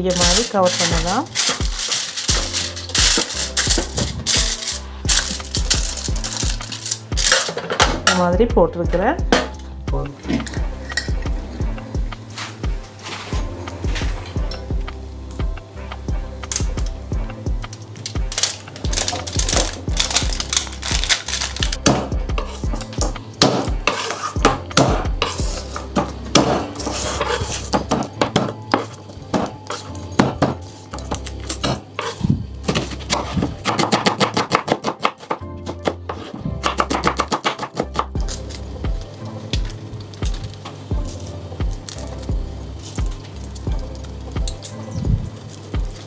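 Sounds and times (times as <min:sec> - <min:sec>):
background music: 0:00.0 - 0:46.0
knife chopping on wooden board: 0:32.7 - 0:38.1.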